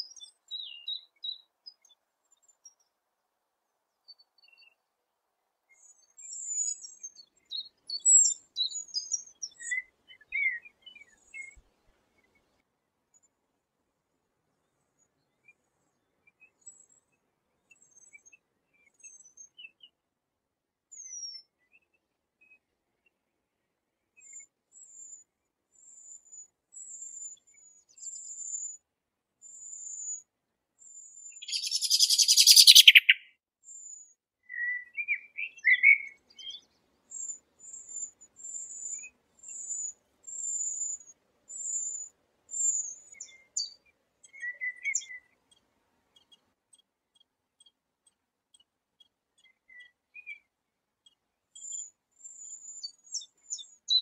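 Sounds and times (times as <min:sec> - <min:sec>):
low bird chirps: 0:31.3 - 0:33.3
thin high bird calls: 0:31.4 - 0:33.3.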